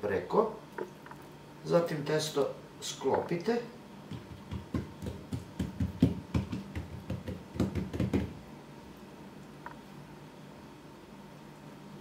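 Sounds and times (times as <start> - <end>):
hands patting dough: 4.0 - 8.4.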